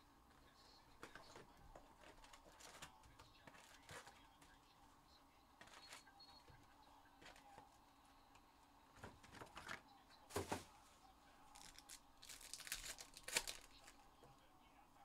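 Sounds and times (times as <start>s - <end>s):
card pack wrappers crinkling and tearing: 11.5s - 14.0s.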